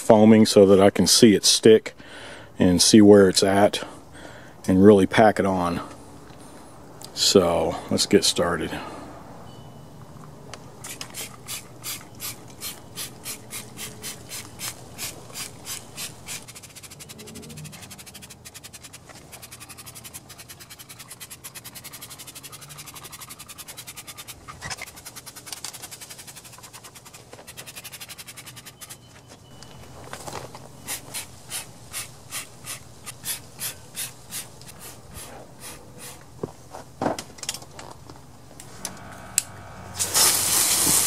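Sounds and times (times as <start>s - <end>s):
trigger spray bottle spritzing: 10.8s - 17.0s.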